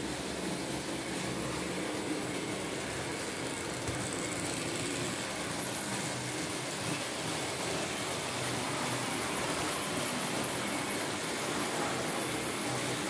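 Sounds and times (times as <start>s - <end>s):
model trains rolling on track: 0.0s - 13.0s.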